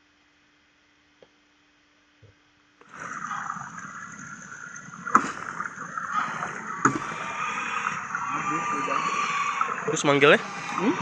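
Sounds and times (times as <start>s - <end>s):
steady hiss: 2.9s - 11.0s.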